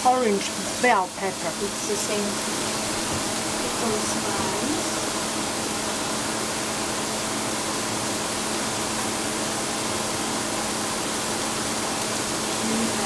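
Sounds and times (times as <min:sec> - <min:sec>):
vegetables sizzling in a frying pan: 0:00.0 - 0:13.0.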